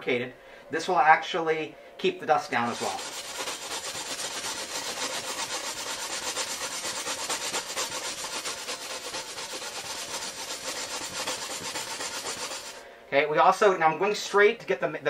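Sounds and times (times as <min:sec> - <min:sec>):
sanding block scraping glass edge: 0:02.6 - 0:12.8.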